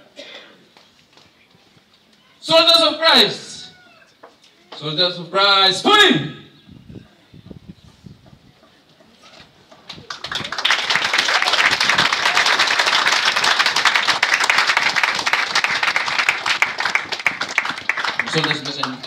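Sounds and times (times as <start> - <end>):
crowd applauding: 9.8 - 19.0.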